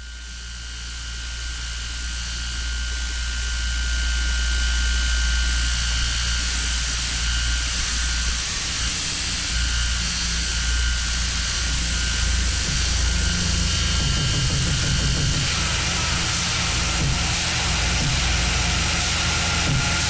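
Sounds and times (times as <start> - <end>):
deep droning rumble: 3.4 - 20.0
dense hiss: 5.3 - 20.0
thin high steady tones: 6.4 - 20.0.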